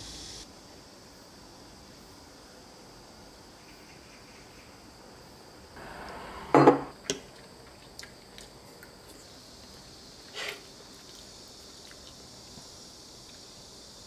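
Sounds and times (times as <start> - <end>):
faint high hiss: 0.0 - 7.3
mug knocking on tabletop: 6.5 - 6.9.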